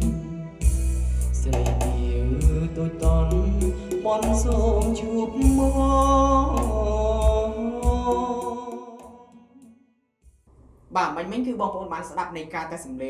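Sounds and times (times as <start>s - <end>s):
man singing karaoke: 0.0s - 0.4s, 1.3s - 9.7s
bass-heavy backing track: 0.0s - 8.8s.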